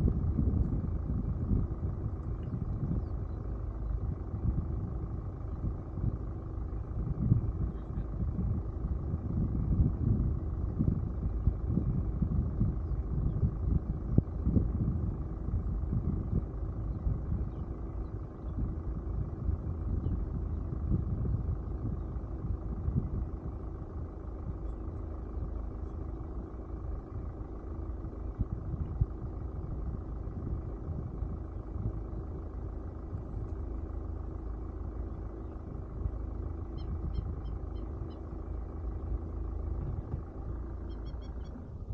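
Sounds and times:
vehicle rumbling on dirt road: 0.0s - 41.9s
faint high chirps: 40.8s - 41.7s.

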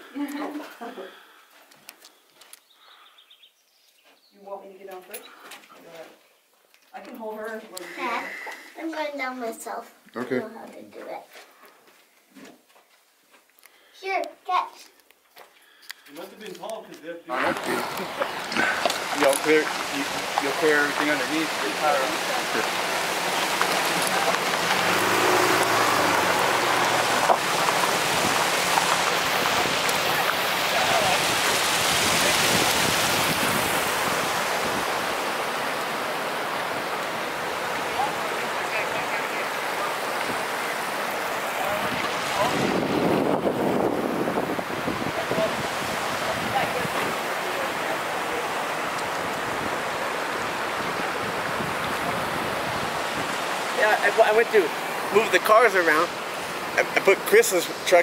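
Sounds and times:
creek water rushing over rocks: 17.3s - 58.0s
pickup truck engine humming: 22.6s - 30.5s.

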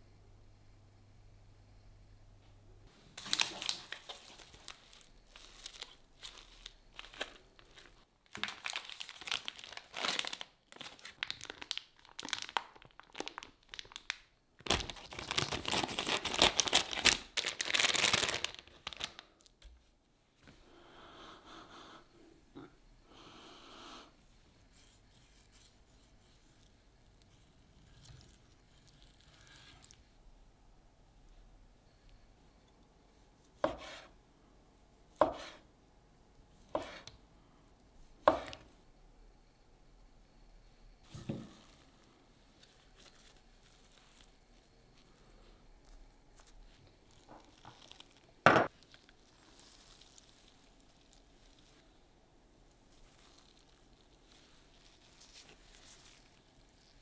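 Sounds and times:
foil pack crinkling: 3.2s - 19.6s, 41.1s - 45.2s, 45.8s - 51.9s, 52.7s - 57.0s.

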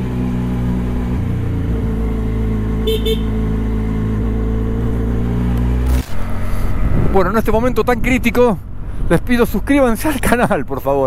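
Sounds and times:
motorcycle engine running: 0.0s - 10.3s
horn beeps: 2.8s - 3.4s.

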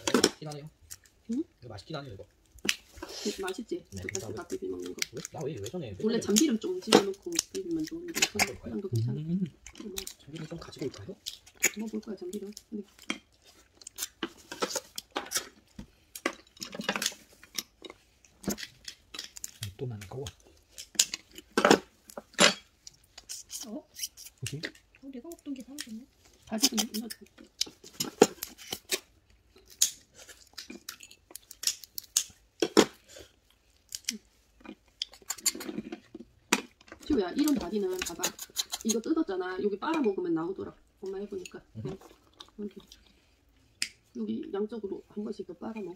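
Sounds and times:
crab shells cracking and scraping: 2.2s - 39.1s
scissors cracking crab shell: 4.0s - 8.6s, 26.6s - 32.4s, 37.9s - 39.1s.

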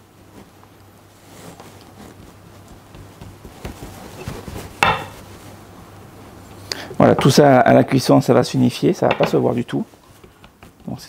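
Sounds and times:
pastry rustling and soft pats: 0.0s - 6.3s, 8.4s - 11.0s
knock on worktop: 4.8s - 5.1s.

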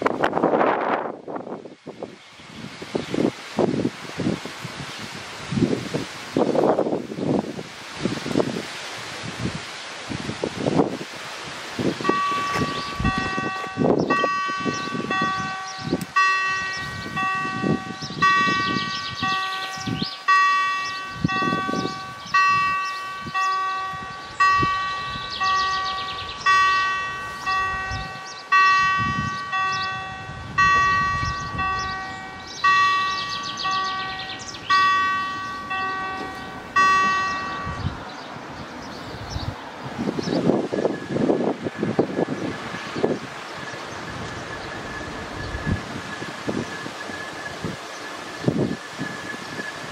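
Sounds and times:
level crossing warning bell: 11.9s - 38.2s, 40.5s - 49.9s.

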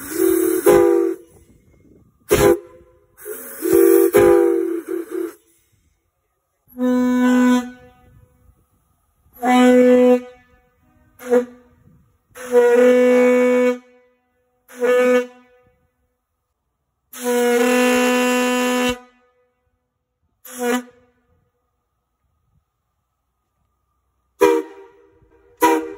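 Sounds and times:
locomotive whistle blasts: 0.0s - 5.9s, 6.7s - 8.5s, 9.3s - 15.9s, 17.1s - 19.4s, 20.4s - 21.4s, 24.4s - 25.9s.

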